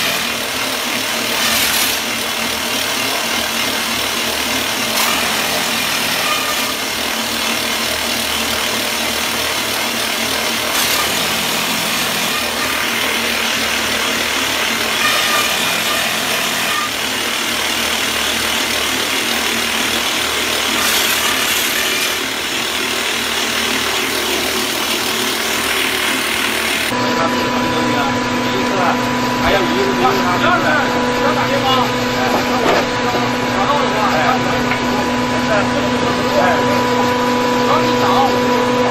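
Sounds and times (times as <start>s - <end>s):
rock drill boring: 0.0s - 26.9s.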